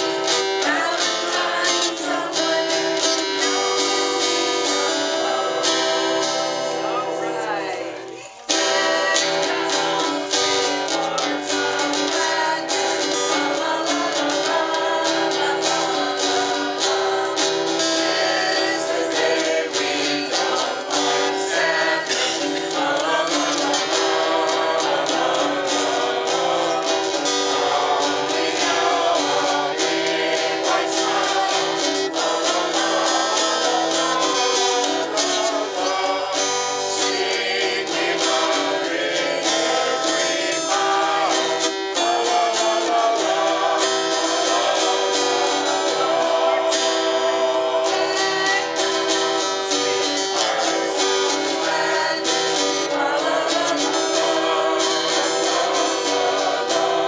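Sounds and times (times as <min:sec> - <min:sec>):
acoustic guitar strumming: 0:00.0 - 0:57.0
woman singing: 0:00.0 - 0:57.0.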